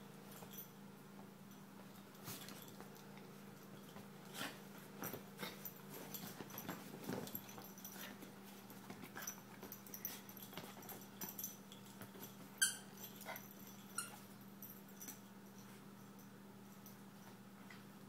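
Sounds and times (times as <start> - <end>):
dogs scuffling on a couch: 1.7 - 14.4.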